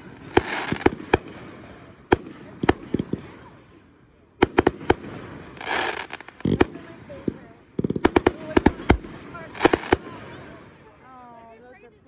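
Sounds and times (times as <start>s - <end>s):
firework hiss: 0.0s - 1.3s, 5.4s - 6.8s, 8.0s - 10.1s
firework shells bursting: 0.0s - 3.3s, 4.4s - 10.2s.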